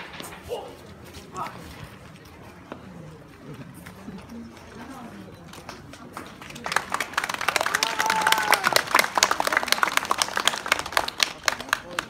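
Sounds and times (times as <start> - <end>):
audience clapping: 5.9 - 12.0.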